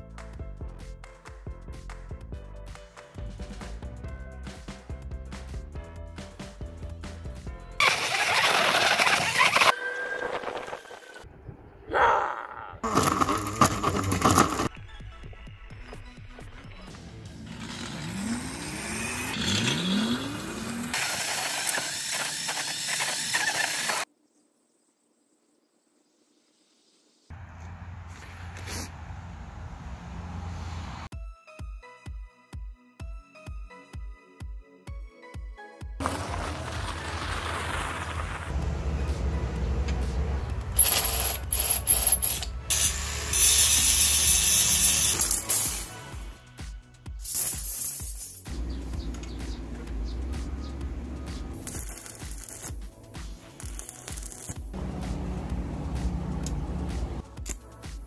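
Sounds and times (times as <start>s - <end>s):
bass-heavy background music: 0.0s - 7.9s, 12.8s - 20.9s, 31.1s - 58.0s
tyre spinning in loose dirt: 7.8s - 11.1s, 12.8s - 14.7s, 36.0s - 38.6s
electric motor whining: 17.4s - 24.0s, 40.8s - 46.3s.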